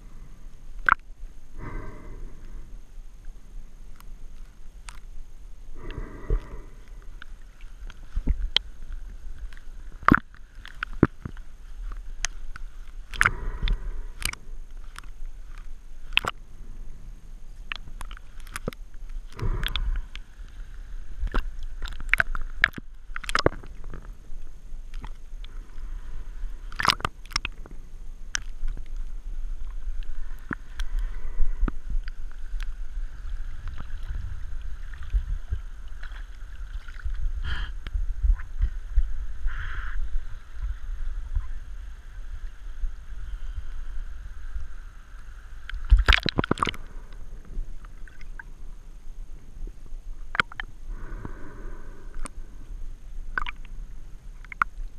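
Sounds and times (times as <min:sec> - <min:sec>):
muffled low underwater rumble: 0:00.0 - 0:54.9
regulator bubbling: 0:17.6 - 0:20.3, 0:21.2 - 0:24.1, 0:26.7 - 0:27.7, 0:50.3 - 0:51.4, 0:53.3 - 0:54.9.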